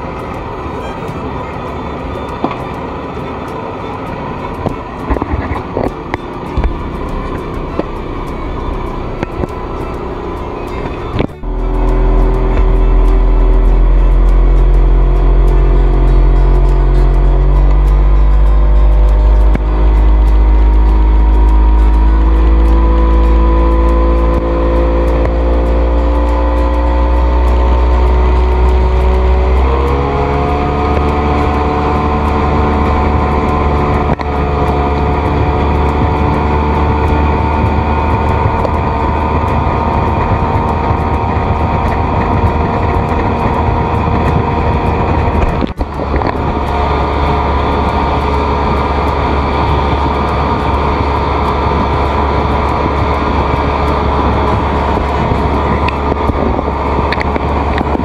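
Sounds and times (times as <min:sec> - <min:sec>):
motorboat engine running: 0:00.0 - 0:58.0.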